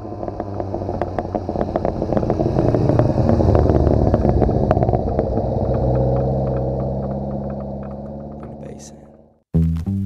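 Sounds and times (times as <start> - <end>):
car engine driving past: 0.0 - 9.4.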